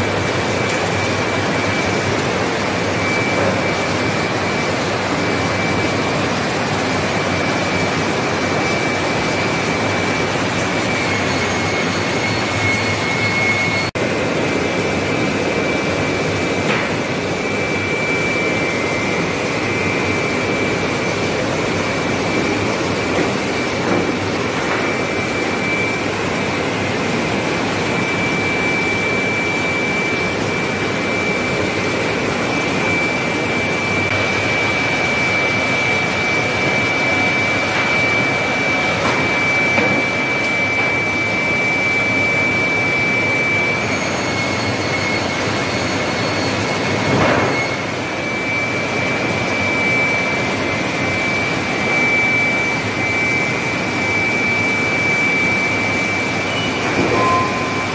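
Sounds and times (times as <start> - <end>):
high steady whine: 0.0 - 57.9
sawmill machinery din: 0.0 - 57.9.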